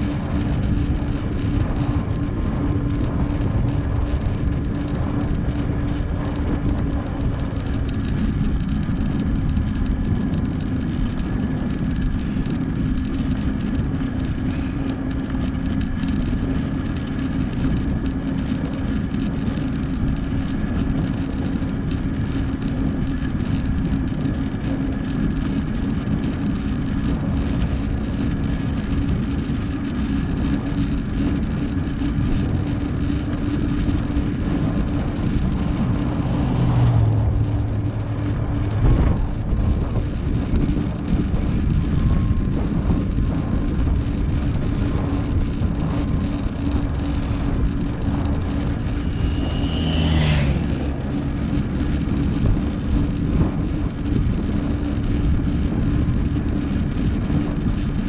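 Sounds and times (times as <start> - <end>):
wind rushing over microphone: 0.0 - 58.0
vehicle passing by: 34.8 - 40.0, 48.6 - 51.6.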